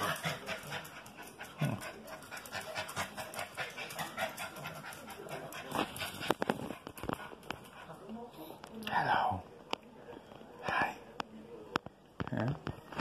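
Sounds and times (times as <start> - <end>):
dog claws ticking on tile floor: 0.0 - 7.8
small dogs panting: 0.0 - 8.3.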